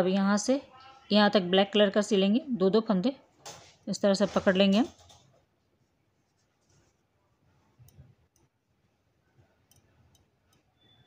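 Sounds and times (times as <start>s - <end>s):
soft clicks and rustles of yarn: 6.2s - 10.9s.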